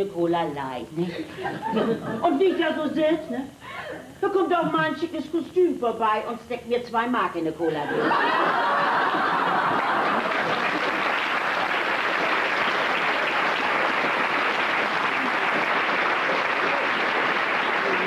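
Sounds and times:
audience applauding: 0:08.3 - 0:18.0.

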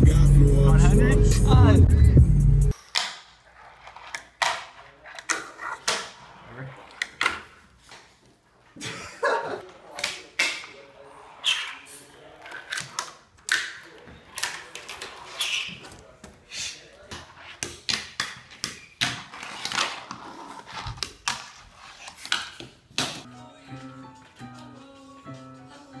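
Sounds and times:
fingerboard wheels rolling and scraping: 0:02.8 - 0:08.6, 0:09.7 - 0:16.2, 0:17.1 - 0:23.1.

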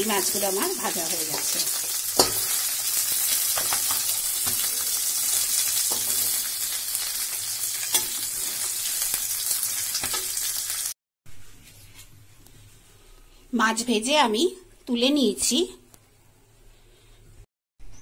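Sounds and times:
fish sizzling in oil: 0:00.0 - 0:11.0.

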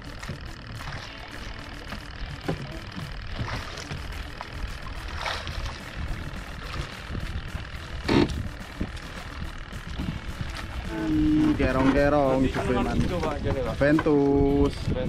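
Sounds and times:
sea and wind rumble: 0:00.0 - 0:15.0
water splashes: 0:00.0 - 0:15.0
knocks on boat: 0:02.4 - 0:03.8, 0:12.8 - 0:14.2.

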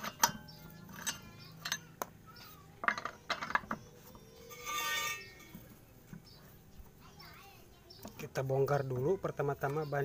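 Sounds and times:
wrench clicking on lug nuts: 0:00.0 - 0:01.8.

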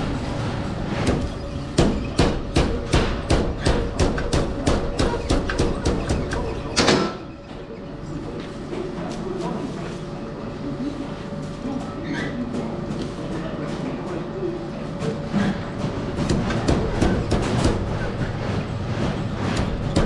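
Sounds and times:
machine knocking rhythmically: 0:01.1 - 0:06.4, 0:16.0 - 0:20.0.

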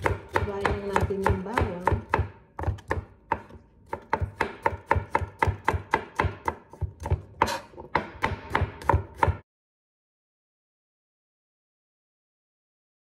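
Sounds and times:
knife chopping on cutting board: 0:00.0 - 0:09.4.

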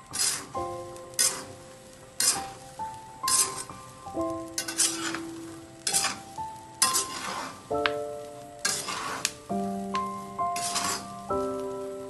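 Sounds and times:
metal spatula scraping frying pan: 0:00.1 - 0:00.6, 0:01.2 - 0:01.6, 0:02.2 - 0:02.6, 0:03.3 - 0:03.7, 0:04.6 - 0:07.7, 0:08.6 - 0:09.4, 0:10.6 - 0:11.2.

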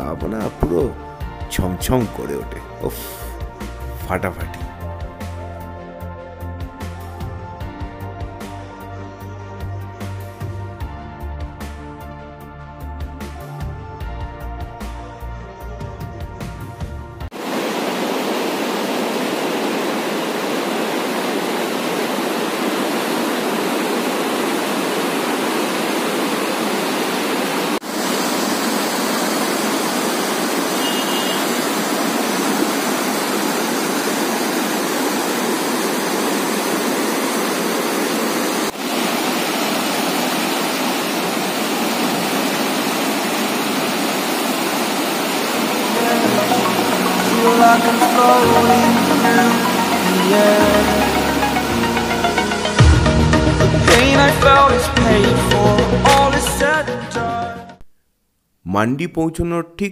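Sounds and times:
background music: 0:00.0 - 0:17.3, 0:45.8 - 0:57.8
steady rushing noise: 0:17.3 - 0:52.8.

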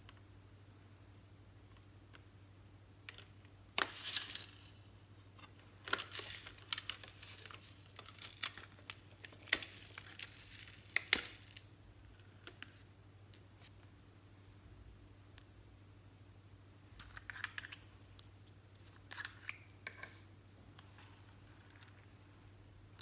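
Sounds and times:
slime beads crunching and crackling: 0:05.8 - 0:12.2.

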